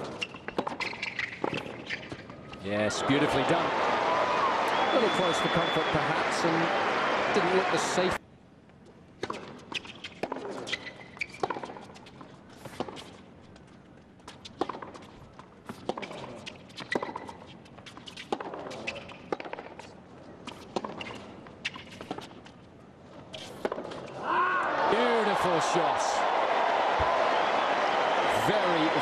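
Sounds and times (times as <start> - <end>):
tennis balls bouncing on hard court: 0.0 - 2.3, 9.2 - 13.1, 14.3 - 22.5, 23.4 - 24.1
tennis balls struck by racquets: 23.4 - 24.0.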